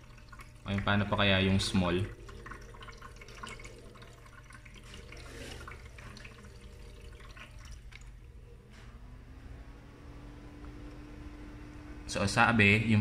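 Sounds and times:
water trickling and dripping: 0.0s - 8.4s
ice maker humming: 0.0s - 13.0s.

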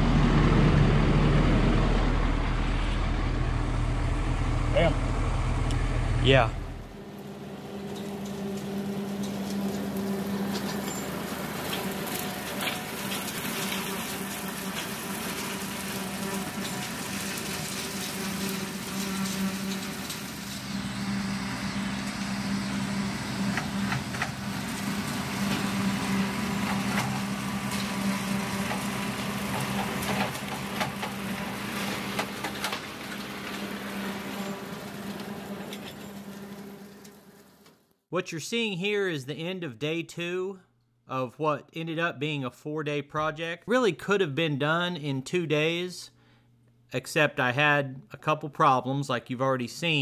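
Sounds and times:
tractor diesel engine running: 0.0s - 37.6s
rotary cutter mowing grass: 6.8s - 37.8s.

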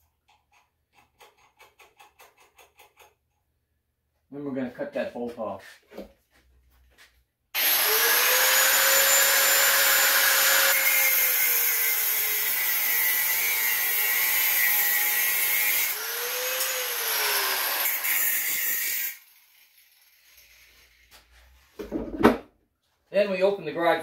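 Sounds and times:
angle grinder cutting bolt: 7.6s - 21.1s.

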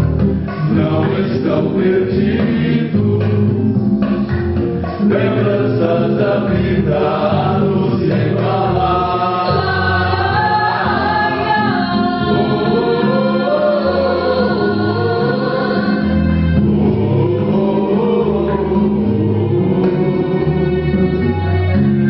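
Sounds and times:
choir singing: 0.5s - 3.7s, 4.9s - 21.5s
woman singing: 9.4s - 16.2s.

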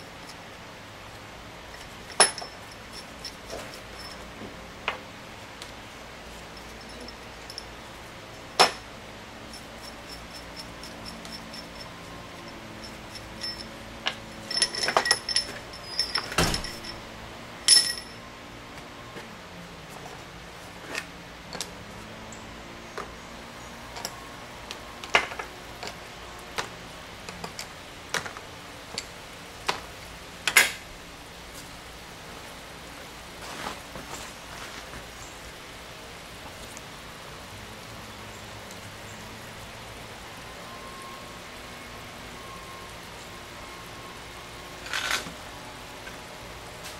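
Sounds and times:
metal bolts clinking: 1.7s - 4.4s, 6.5s - 7.7s, 8.6s - 8.9s, 9.5s - 18.2s.

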